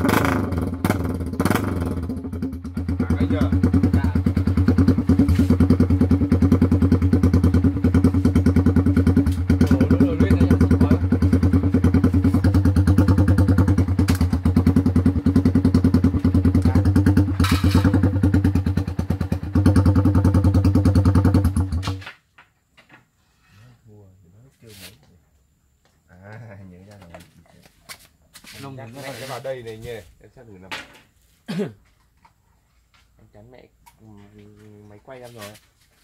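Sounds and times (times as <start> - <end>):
motorcycle engine idling: 0.0 - 22.0.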